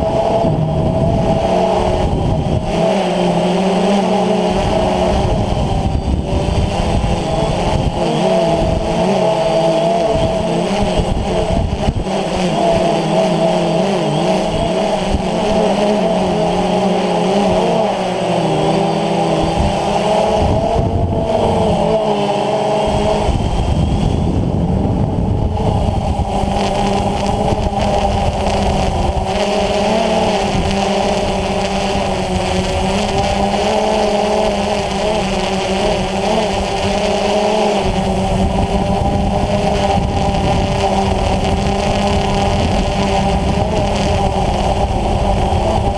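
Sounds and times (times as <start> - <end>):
low rumble: 0.0 - 2.8, 19.4 - 22.1, 22.8 - 33.4
drone motors buzzing whine: 0.0 - 45.9.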